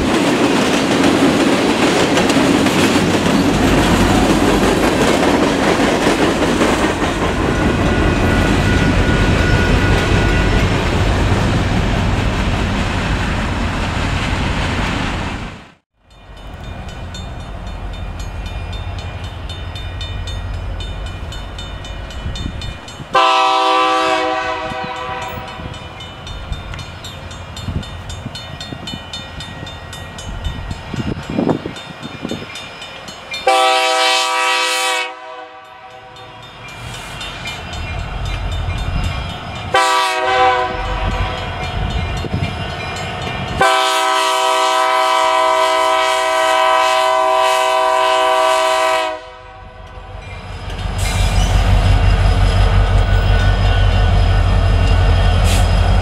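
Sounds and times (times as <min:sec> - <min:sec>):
crossing bell ringing: 0:02.6 - 0:11.1, 0:16.0 - 0:46.1, 0:49.2 - 0:56.0
locomotive air horn blasts: 0:23.1 - 0:25.7, 0:33.4 - 0:36.3, 0:39.7 - 0:41.5, 0:43.6 - 0:49.8.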